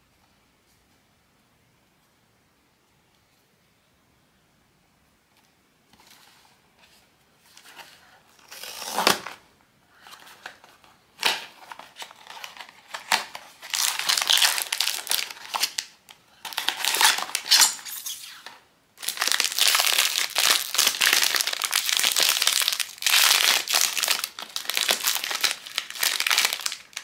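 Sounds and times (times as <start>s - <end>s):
crinkling packaging: 10.0s - 27.0s.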